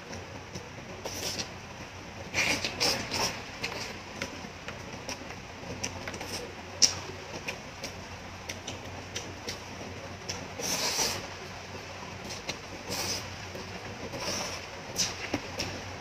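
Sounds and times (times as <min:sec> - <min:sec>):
slurping noodles: 0:02.3 - 0:03.9, 0:10.6 - 0:11.3, 0:12.3 - 0:13.3, 0:14.1 - 0:15.4.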